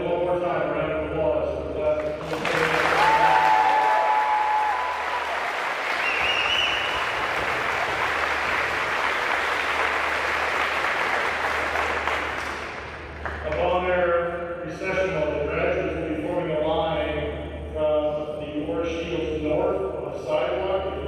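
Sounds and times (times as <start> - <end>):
audience applauding: 2.0 - 13.6
crowd cheering: 2.2 - 13.5.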